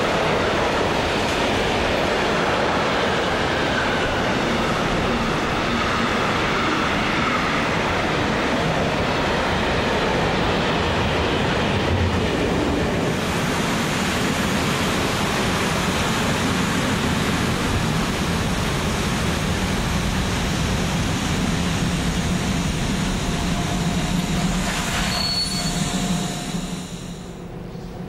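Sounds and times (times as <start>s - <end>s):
train wheels on rail: 0.0s - 28.0s.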